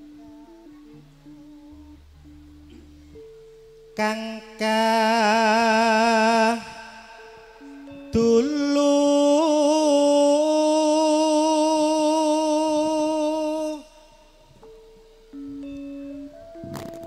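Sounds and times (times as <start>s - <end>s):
faint instrument notes: 0.0s - 17.0s
person singing long note: 4.0s - 14.6s.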